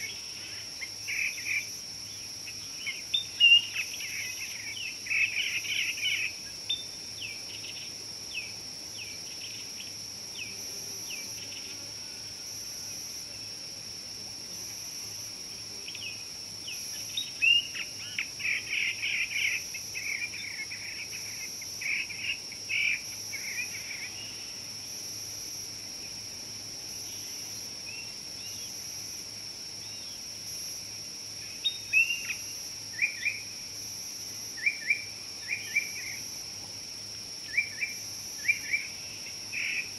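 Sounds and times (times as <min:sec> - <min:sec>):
high-pitched insect drone: 0:27.0 - 0:39.9.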